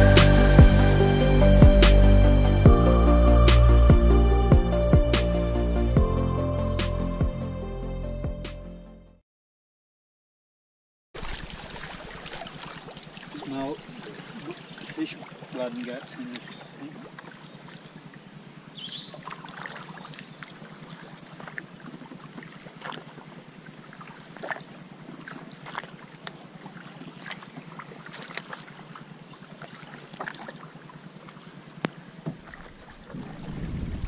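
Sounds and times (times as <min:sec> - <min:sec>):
water lapping against canoe hull: 0:11.2 - 0:34.0
wind buffeting microphone: 0:32.6 - 0:34.0.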